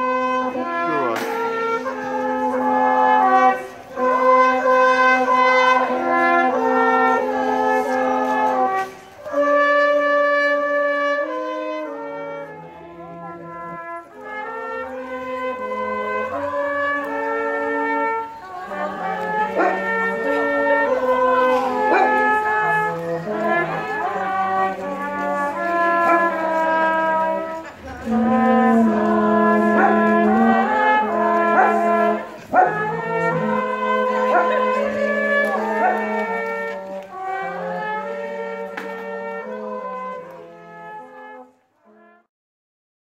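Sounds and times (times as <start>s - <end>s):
brass group playing: 0.0s - 42.3s
carol singers singing: 0.1s - 8.8s, 12.8s - 38.4s.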